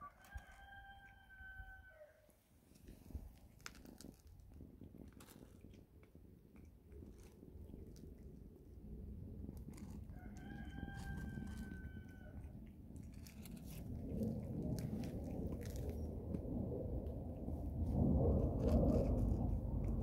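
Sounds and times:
cat crunching dry kibble: 0:00.0 - 0:01.4, 0:02.7 - 0:20.0
rooster crowing: 0:00.0 - 0:02.3, 0:10.1 - 0:12.4
low rumble: 0:03.0 - 0:20.0.

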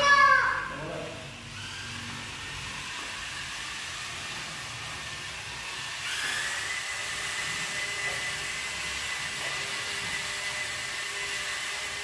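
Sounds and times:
toy car motors whining: 0:00.0 - 0:12.0
loud high-pitched motor whine: 0:00.2 - 0:12.0.

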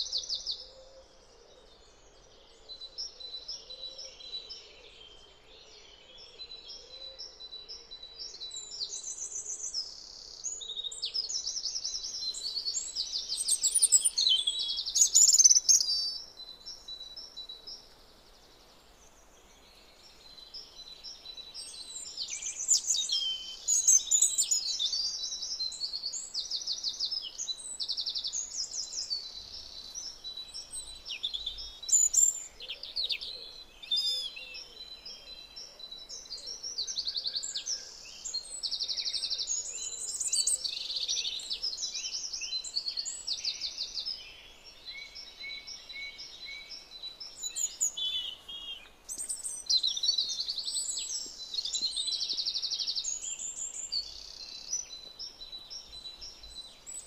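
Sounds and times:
songbird trilling: 0:12.4 - 0:16.2.

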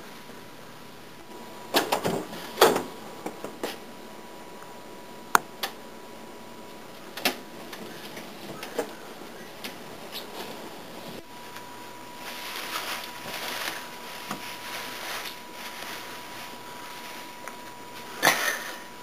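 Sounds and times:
clothing rustling: 0:09.6 - 0:18.6.

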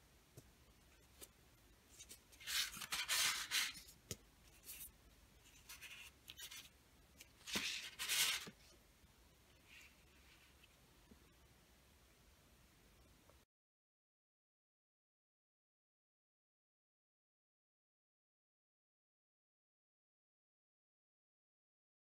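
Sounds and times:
plastic and paper scraping on table: 0:02.0 - 0:03.9, 0:07.4 - 0:08.6.

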